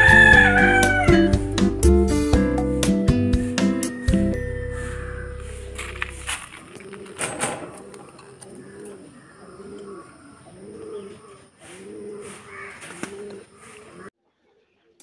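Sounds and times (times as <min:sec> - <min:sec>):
pigeons cooing: 0:04.7 - 0:14.7.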